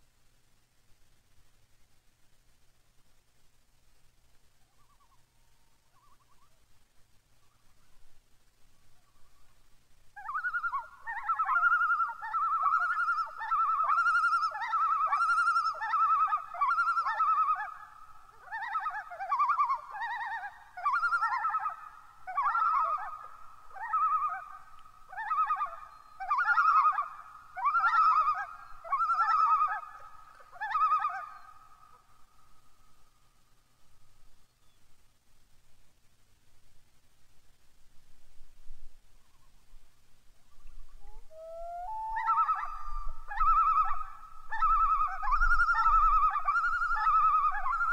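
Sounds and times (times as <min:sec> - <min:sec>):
loons calling: 0:10.2 - 0:33.1, 0:40.4 - 0:47.9.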